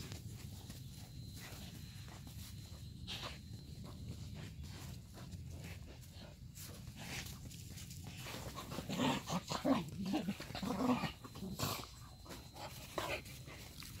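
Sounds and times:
dog chewing and crunching: 2.6 - 14.0
dog growling: 8.3 - 12.2.

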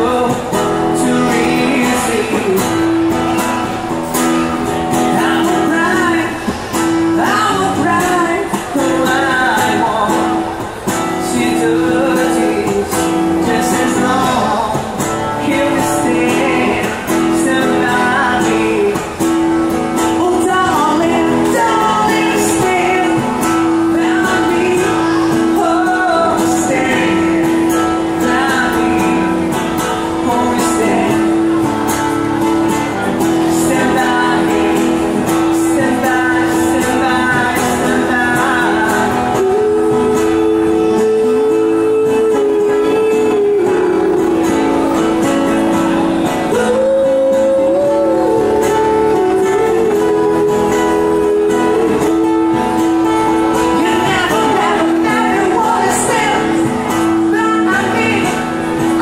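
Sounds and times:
man singing into a microphone: 0.0 - 59.0.

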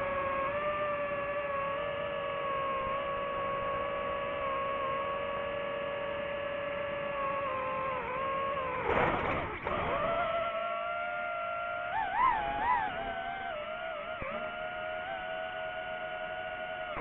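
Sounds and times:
drone motors whining: 0.0 - 17.0.

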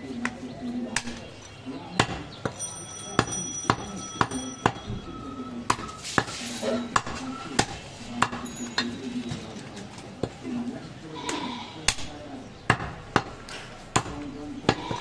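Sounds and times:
cleaver chopping on wooden block: 12.7 - 15.0.

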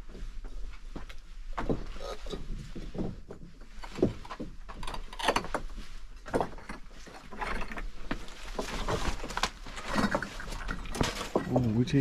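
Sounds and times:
footsteps on loose rocks: 0.0 - 12.0
clothing and backpack rustling: 5.6 - 12.0.

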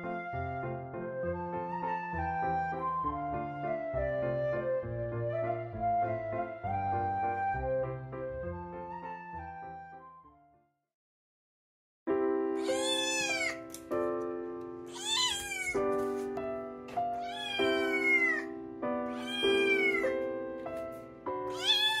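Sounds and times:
kitten meowing: 12.6 - 13.7, 14.9 - 15.8, 17.1 - 18.5, 19.1 - 20.2, 21.5 - 22.0
background music with held chords: 18.0 - 21.8.

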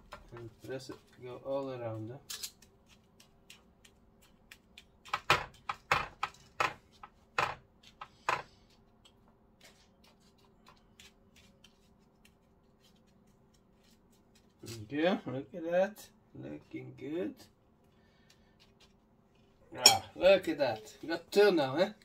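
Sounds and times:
tamper pressing biscuit crumbs: 1.9 - 14.8.

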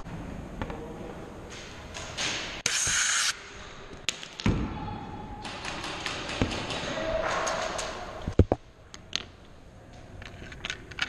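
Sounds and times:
loud hiss: 2.6 - 3.4.

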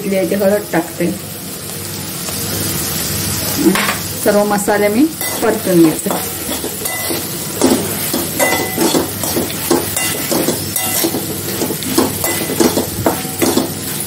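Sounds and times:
food sizzling in oil: 0.0 - 14.0
metal spatula scraping metal pan: 5.2 - 14.0.

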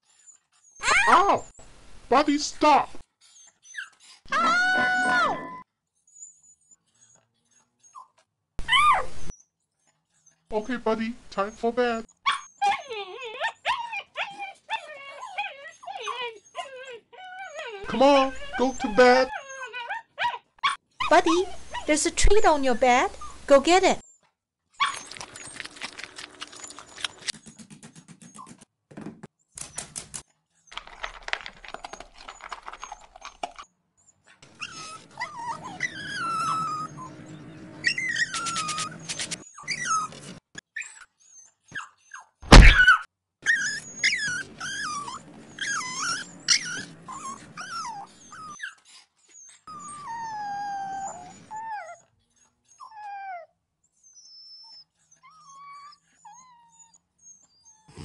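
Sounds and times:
dog whimpering and whining: 0.0 - 1.6, 3.2 - 10.7, 11.5 - 22.0, 34.0 - 58.0
loud thunk: 42.5 - 42.9.

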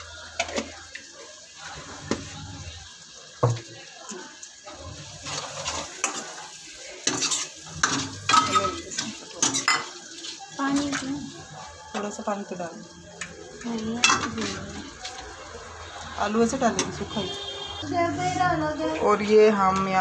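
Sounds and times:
food sizzling: 0.0 - 20.0
metal ladle scraping and clinking pan: 7.0 - 10.0.

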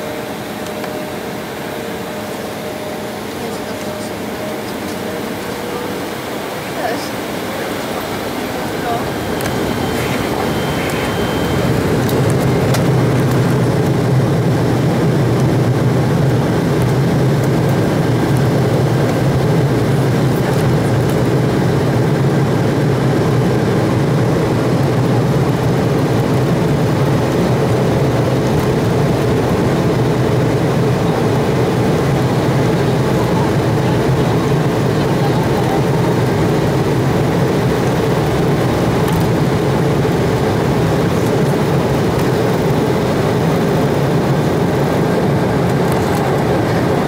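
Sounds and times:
jet engines in cabin: 0.0 - 47.0.

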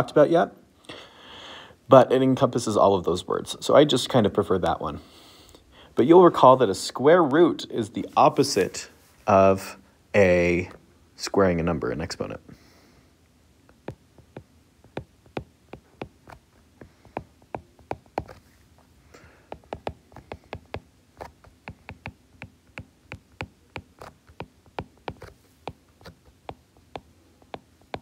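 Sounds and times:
stylus tapping glass screen: 13.7 - 18.4, 19.5 - 28.0.

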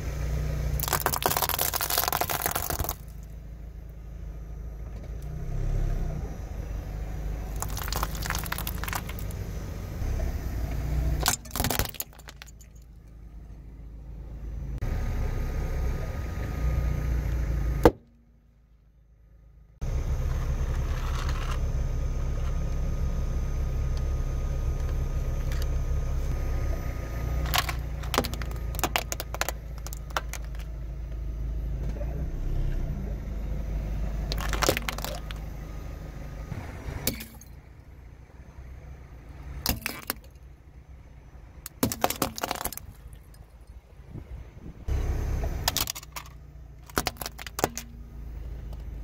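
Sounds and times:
car engine running low: 0.0 - 49.0
tyre crunching plastic toys: 0.8 - 3.3, 7.5 - 9.4, 11.2 - 12.8, 27.4 - 30.7, 34.3 - 35.4, 41.7 - 43.2, 45.6 - 47.9.

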